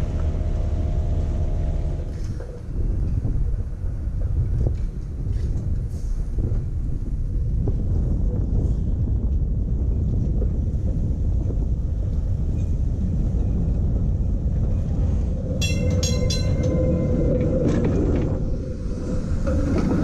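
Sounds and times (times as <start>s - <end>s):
streetcar rumbling: 0.0s - 20.0s
streetcar wheel whine: 0.0s - 20.0s
sharp ringing bell strikes: 15.6s - 16.7s.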